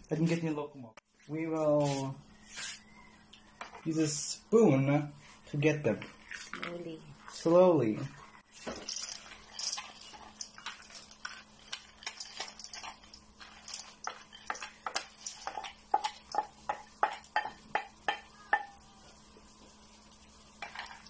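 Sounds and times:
metal spoon clinking against cookware: 0:08.8 - 0:18.7.

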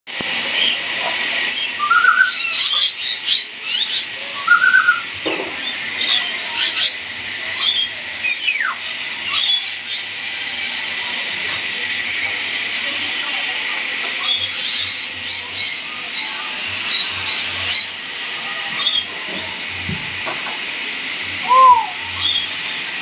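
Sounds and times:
steady hiss: 0:00.1 - 0:23.0
parrots chirping and calling: 0:00.5 - 0:10.4, 0:14.1 - 0:20.2, 0:21.4 - 0:22.7.

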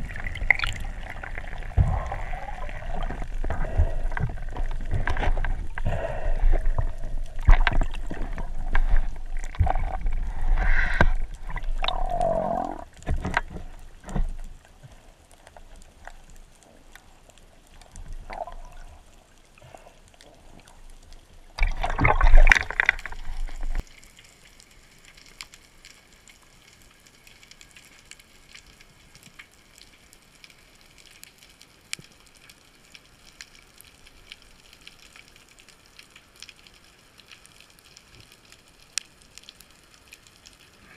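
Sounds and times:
faint underwater hiss: 0:00.0 - 0:13.0
crackling ticks: 0:00.0 - 0:21.8, 0:22.5 - 0:40.8
water sloshing and bubbling: 0:00.0 - 0:40.9
splashing near surface: 0:21.6 - 0:23.8.

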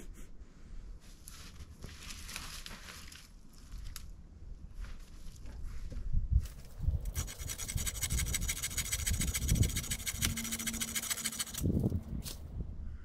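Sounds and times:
scratchy rasping on branch: 0:07.0 - 0:12.4.

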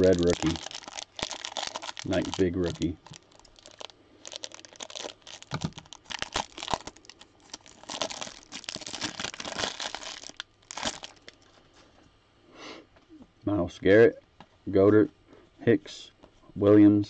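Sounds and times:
plastic wrapper crinkling and tearing: 0:00.0 - 0:11.8.

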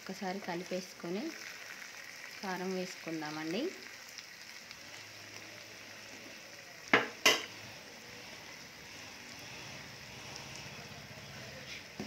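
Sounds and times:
fish sizzling in a pan: 0:00.0 - 0:12.0
spatula tapping pan: 0:06.9 - 0:07.6.

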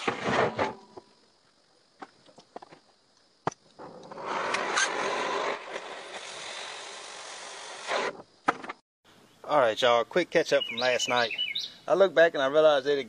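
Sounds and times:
cutting torch hissing: 0:04.1 - 0:08.2.

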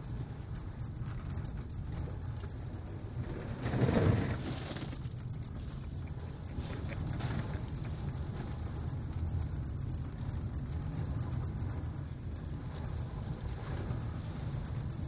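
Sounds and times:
car road and engine rumble: 0:00.0 - 0:15.0
slush splashing on windshield: 0:03.3 - 0:08.7.

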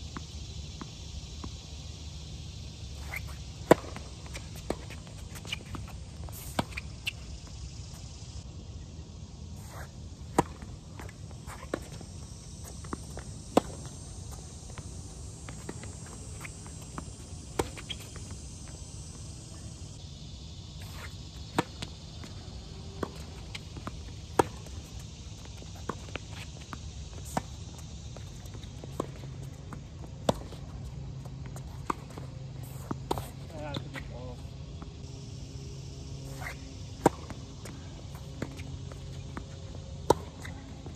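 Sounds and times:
faint high insect drone: 0:00.0 - 0:40.9
footsteps on court: 0:03.0 - 0:08.0, 0:09.7 - 0:19.3
tennis balls bouncing on court: 0:03.0 - 0:08.2, 0:09.6 - 0:19.7, 0:20.9 - 0:34.9, 0:36.3 - 0:40.9
tennis balls struck by rackets: 0:03.0 - 0:08.2, 0:09.6 - 0:19.7, 0:20.9 - 0:34.9, 0:36.3 - 0:40.9.

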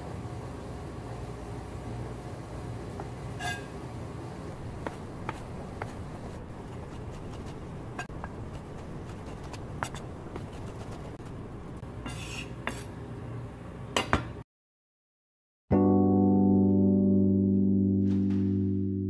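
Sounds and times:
low background hum: 0:00.0 - 0:14.4.

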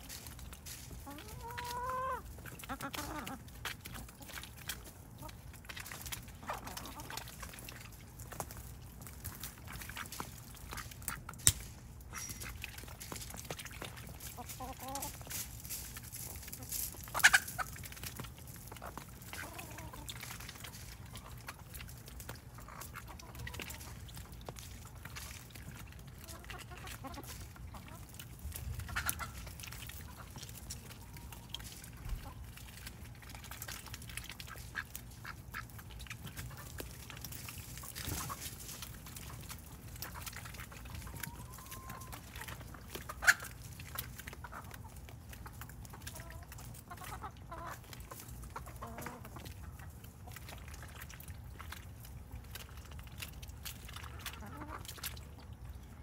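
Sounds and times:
chickens clucking: 0:00.1 - 0:56.0
ducks quacking: 0:01.0 - 0:04.4, 0:28.7 - 0:32.5, 0:44.4 - 0:50.4, 0:54.0 - 0:55.0.

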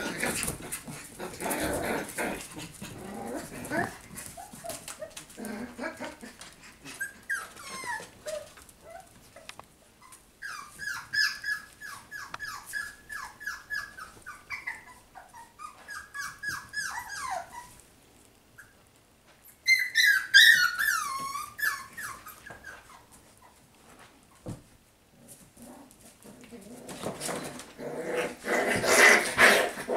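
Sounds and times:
puppy yipping and whining: 0:06.9 - 0:17.8, 0:19.5 - 0:23.6.

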